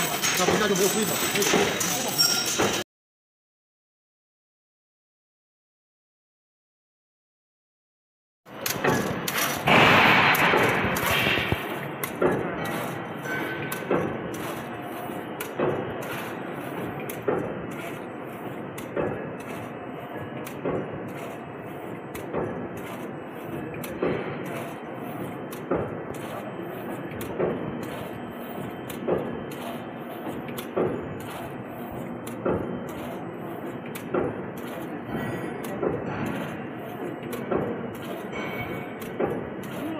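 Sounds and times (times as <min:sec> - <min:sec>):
loom mechanical clatter: 0:00.0 - 0:02.8, 0:08.5 - 0:39.9
loom sharp knocks: 0:00.0 - 0:02.8, 0:08.5 - 0:18.0
machine running noise: 0:00.0 - 0:02.9, 0:08.5 - 0:39.9.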